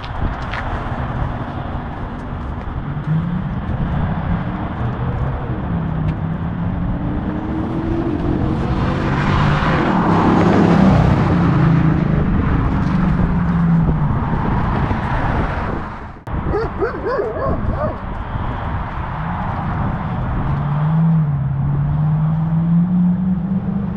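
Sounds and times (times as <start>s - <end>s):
dog barking: 16.5s - 18.0s.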